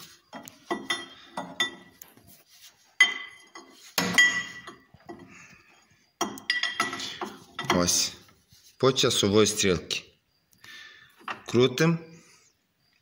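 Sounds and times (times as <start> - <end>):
ringing metal clanks: 0.3 - 2.0, 3.0 - 5.3, 6.2 - 8.0
wrench clinking on metal nut: 0.3 - 2.0, 6.2 - 7.9.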